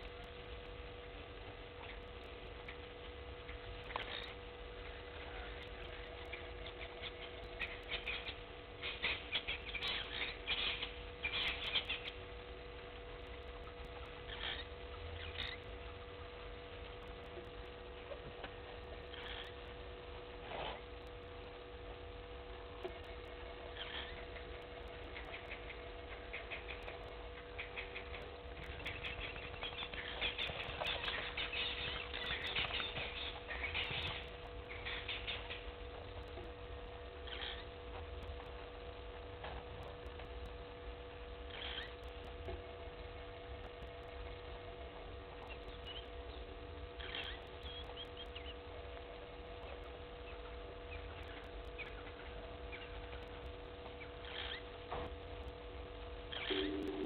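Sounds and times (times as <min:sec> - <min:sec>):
electrical hum: 0:00.0 - 0:57.0
high chirping bird calls: 0:05.3 - 0:12.2, 0:14.1 - 0:15.8, 0:22.9 - 0:36.2, 0:37.2 - 0:37.8, 0:41.5 - 0:42.1, 0:45.3 - 0:48.8, 0:54.0 - 0:55.1, 0:56.3 - 0:57.0.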